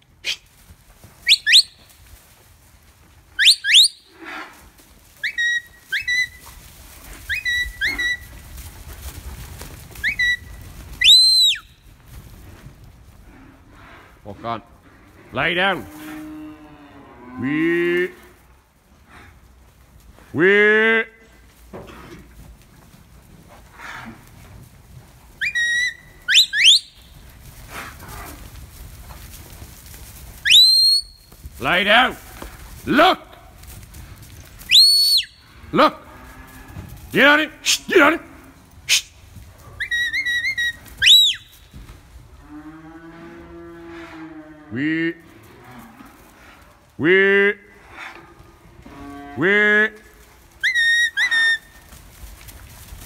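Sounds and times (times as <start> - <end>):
rising shepherd whistles: 1.2 - 1.8, 3.4 - 4.1, 5.2 - 6.4, 7.3 - 8.3, 10.0 - 11.8, 25.4 - 27.1, 30.4 - 31.3, 34.7 - 35.4, 39.8 - 41.6, 50.6 - 51.7.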